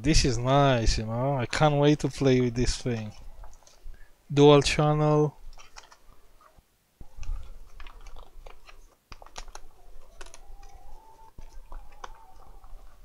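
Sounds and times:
plastic packaging crinkling: 0:07.0 - 0:10.8.

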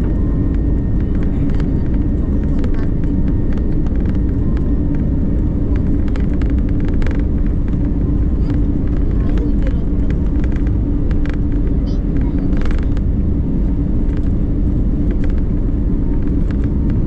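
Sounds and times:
constant hum: 0:00.0 - 0:17.0
jet engines roaring on takeoff: 0:00.0 - 0:17.0
light clicks and rattles: 0:05.7 - 0:13.0.

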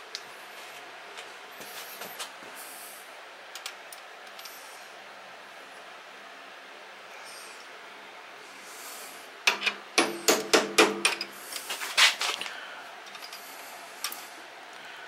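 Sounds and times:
hammer tapping metal punch: 0:09.5 - 0:11.3.

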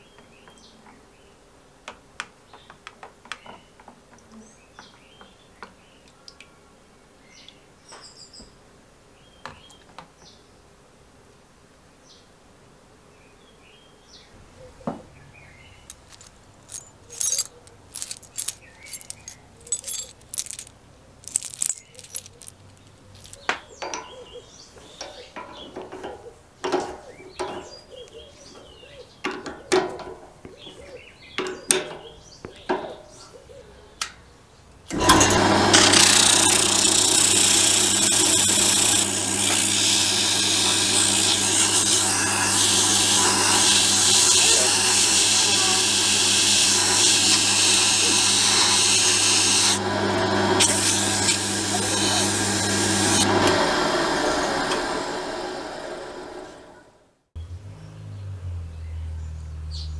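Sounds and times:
drill press motor hum: 0:34.9 - 0:57.0
sandpaper hissing on spinning rod: 0:35.7 - 0:49.8, 0:50.6 - 0:53.4.

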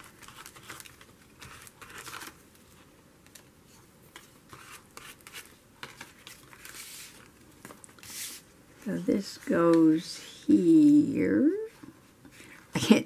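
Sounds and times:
paper rustling and scraping: 0:00.0 - 0:08.5.

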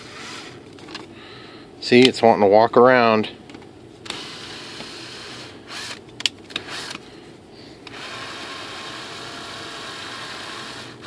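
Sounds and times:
cordless drill driving screw: 0:04.1 - 0:07.0, 0:07.9 - 0:11.0.

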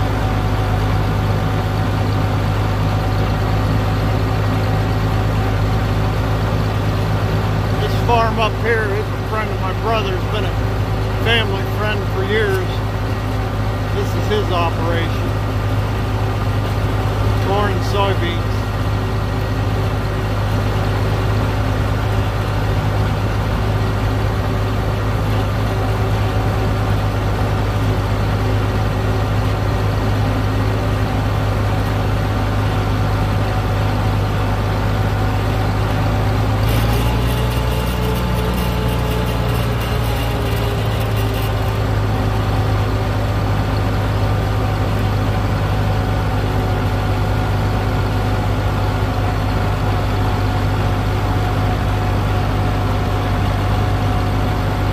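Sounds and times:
tractor engine running: 0:00.0 - 0:54.9
higher engine note: 0:07.7 - 0:18.9.

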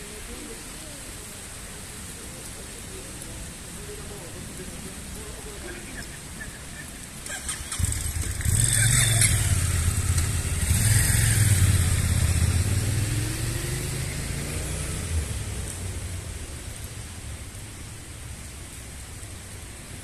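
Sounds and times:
military vehicle engine passing by: 0:07.3 - 0:16.0.

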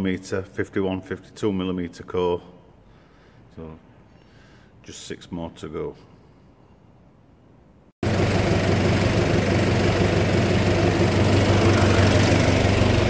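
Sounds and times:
engine idling: 0:08.0 - 0:13.0.

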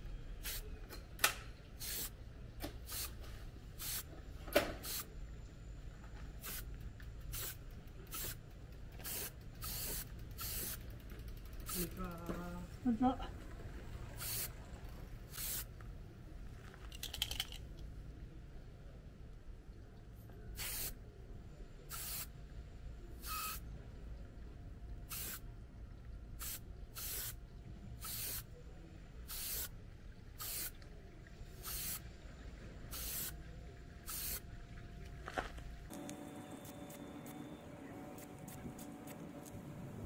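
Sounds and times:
spray paint can hissing: 0:00.4 - 0:00.7, 0:01.8 - 0:02.2, 0:02.8 - 0:03.2, 0:03.8 - 0:04.1, 0:04.8 - 0:05.1, 0:06.4 - 0:08.4, 0:09.0 - 0:12.0, 0:14.2 - 0:14.5, 0:15.3 - 0:15.7, 0:20.6 - 0:21.0, 0:21.9 - 0:22.3, 0:23.2 - 0:23.6, 0:25.1 - 0:25.4, 0:26.4 - 0:27.4, 0:28.0 - 0:28.5, 0:29.3 - 0:29.7, 0:30.4 - 0:30.8, 0:31.6 - 0:32.0, 0:32.9 - 0:33.3, 0:34.1 - 0:34.4.

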